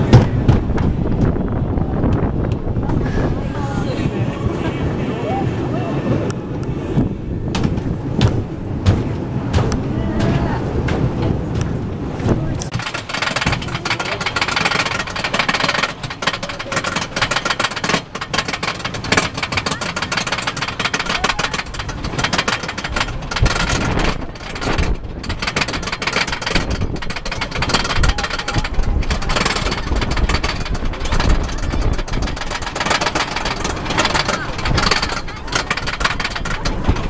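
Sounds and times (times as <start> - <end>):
lift chain clacking: 7.5 - 37.0.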